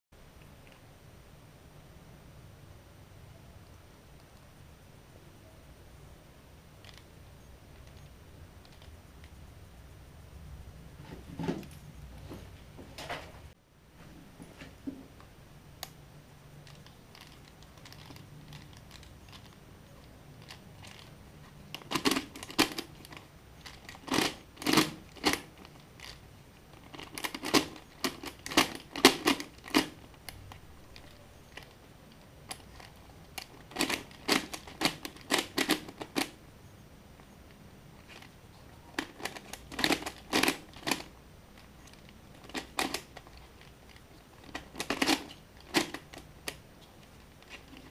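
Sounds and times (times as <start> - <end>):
plastic puzzle pieces clicking: 16.6 - 21.1, 21.7 - 26.2, 26.8 - 36.4, 39.0 - 47.9.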